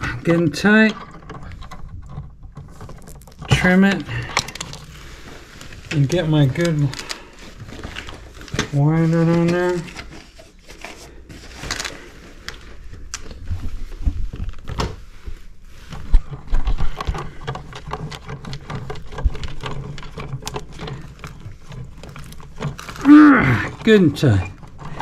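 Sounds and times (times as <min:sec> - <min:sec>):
wire nut clicking and scraping: 0:16.0 - 0:23.1.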